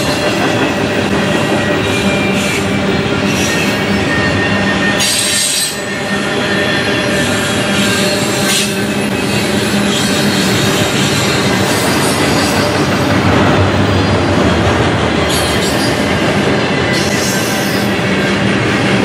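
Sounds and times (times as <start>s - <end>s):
steel wheels rolling on rail: 0.0s - 19.0s
high-pitched wheel squeals: 1.3s - 12.9s.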